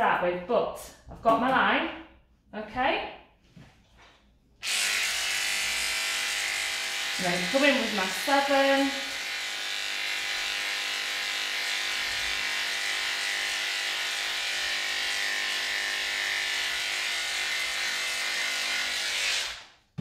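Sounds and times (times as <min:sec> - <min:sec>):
electric clippers humming: 0:04.6 - 0:19.7.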